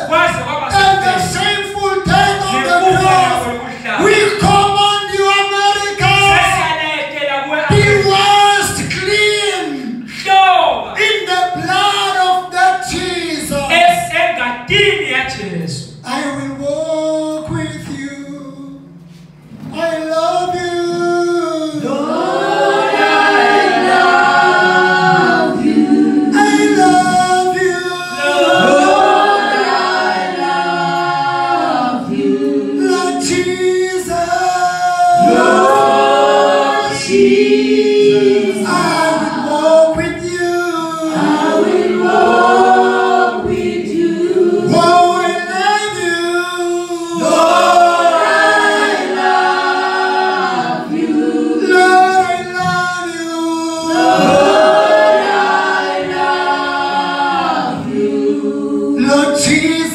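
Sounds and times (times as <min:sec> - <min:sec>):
choir singing gospel song: 0:00.0 - 0:06.8, 0:16.1 - 0:59.9
men singing into microphones: 0:23.8 - 0:59.9.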